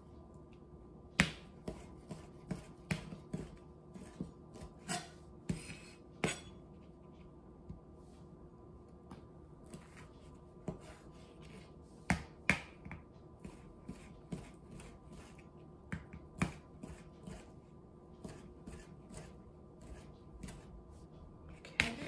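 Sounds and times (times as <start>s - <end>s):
knife chopping on plastic board: 1.2s - 6.4s, 12.1s - 17.4s.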